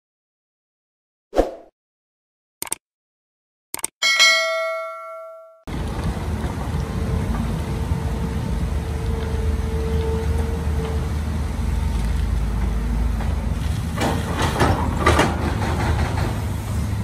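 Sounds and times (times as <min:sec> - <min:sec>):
short clicks: 0:02.6 - 0:02.8, 0:03.7 - 0:04.0
bell-like ding: 0:04.0 - 0:05.7
heavy machine engine rumbling: 0:05.7 - 0:17.0.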